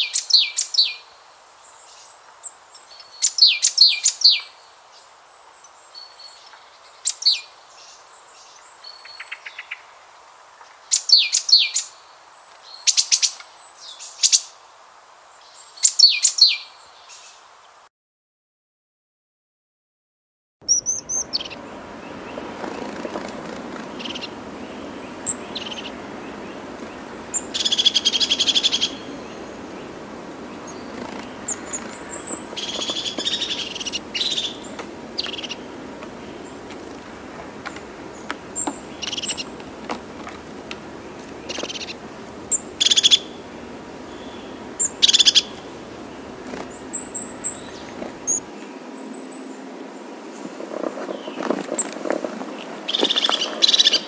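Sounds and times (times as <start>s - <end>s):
low background noise: 20.6s - 54.0s
gulls squawking: 20.7s - 48.4s.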